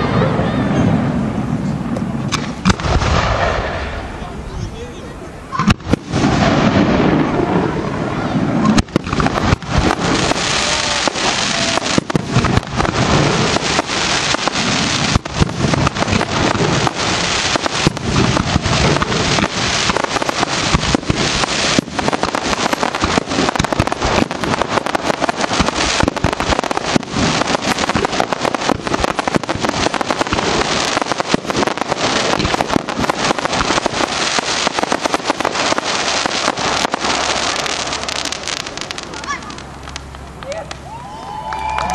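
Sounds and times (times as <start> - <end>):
hiss of burning fireworks: 0.0 - 41.8
fireworks shells bursting: 8.6 - 40.4.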